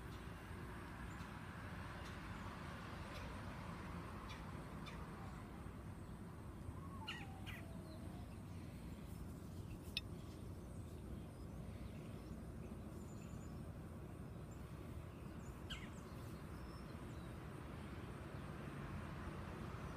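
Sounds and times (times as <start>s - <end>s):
outdoor background noise: 0.0s - 19.9s
bird chirps: 6.8s - 8.5s, 15.2s - 17.3s.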